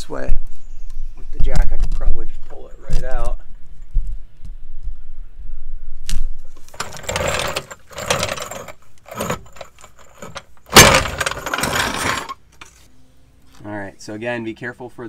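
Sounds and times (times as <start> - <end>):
floor jack clanking on concrete: 6.7 - 12.4.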